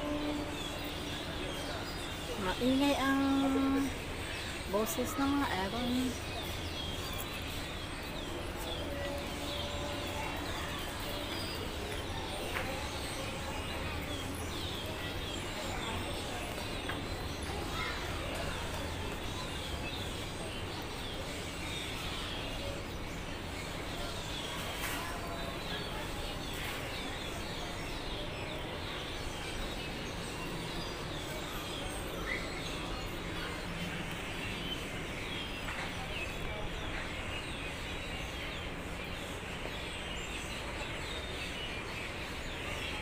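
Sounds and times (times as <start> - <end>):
birds chirping: 0.0 - 43.0.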